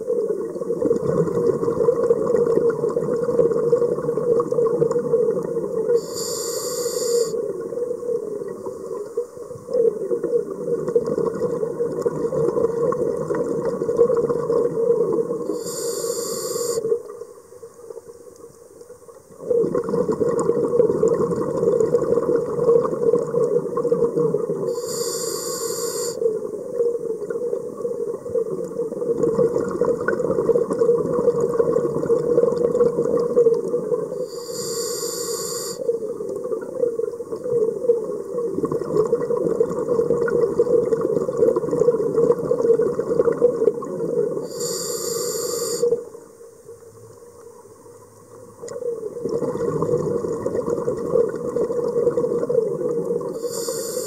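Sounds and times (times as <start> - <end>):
exhaled bubbles rushing: 0.0 - 6.0, 7.4 - 15.6, 19.3 - 24.8, 26.3 - 34.2, 36.0 - 44.5, 48.4 - 53.4
diver breathing through regulator: 6.0 - 7.4, 15.5 - 17.0, 24.7 - 26.3, 34.2 - 36.0, 44.4 - 46.1, 53.3 - 54.0.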